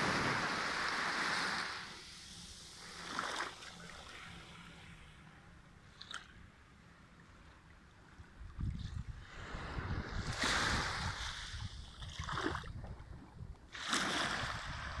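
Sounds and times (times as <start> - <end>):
sea waves breaking on beach: 0.0 - 4.8, 9.2 - 12.7, 13.7 - 15.0
wind rumble on microphone: 8.2 - 15.0.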